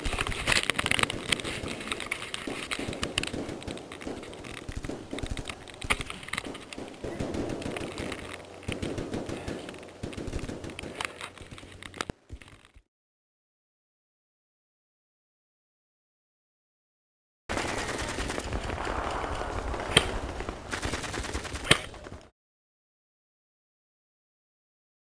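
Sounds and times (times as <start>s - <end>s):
airsoft guns firing: 0.0s - 11.8s, 17.5s - 22.3s.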